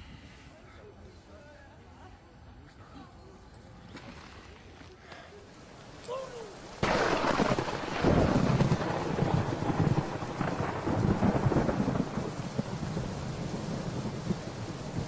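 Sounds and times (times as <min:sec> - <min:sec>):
steady rain: 0:04.2 - 0:15.0
rolling thunder: 0:06.8 - 0:15.0.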